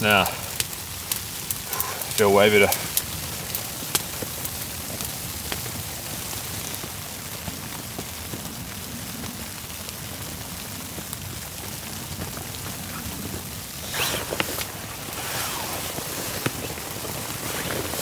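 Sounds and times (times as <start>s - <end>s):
raindrops ticking: 0.0s - 18.0s
steady rain hiss: 0.0s - 18.0s.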